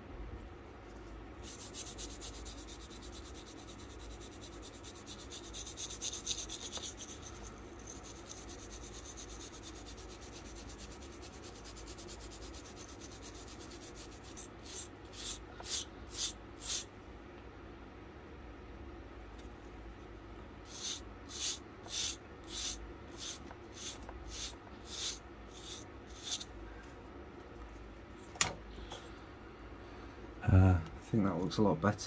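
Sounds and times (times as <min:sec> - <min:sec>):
wire brush scrubbing wood: 0:01.4 - 0:16.9, 0:20.7 - 0:26.5.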